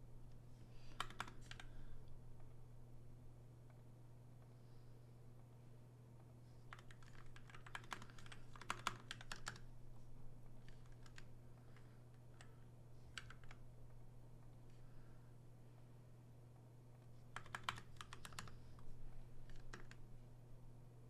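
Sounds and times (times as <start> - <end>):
steady low hum: 0.0 - 21.0
typing on computer keyboard: 0.8 - 1.8, 6.7 - 9.6, 10.6 - 13.6, 17.3 - 18.8, 19.4 - 20.0.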